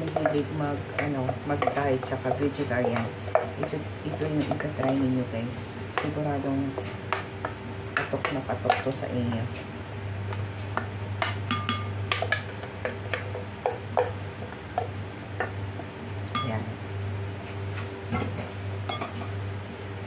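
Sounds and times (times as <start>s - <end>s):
wooden spoon stirring in glass bowl: 0.0s - 5.3s
steady low hum: 0.0s - 20.0s.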